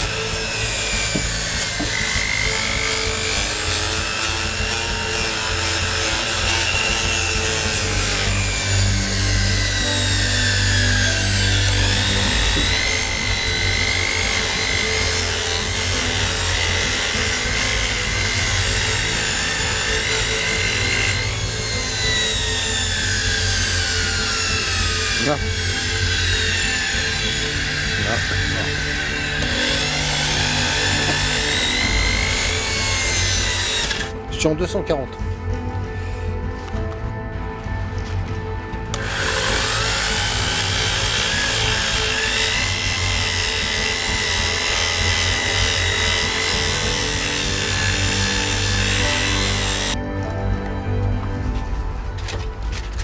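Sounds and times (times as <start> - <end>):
motor whine: 0.0 - 34.3, 35.2 - 53.0
electric sander on wood: 0.0 - 50.3.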